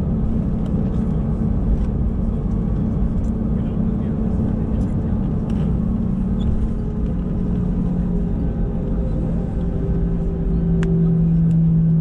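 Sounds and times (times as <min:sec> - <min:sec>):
jet engines rumbling at low thrust: 0:00.0 - 0:12.0.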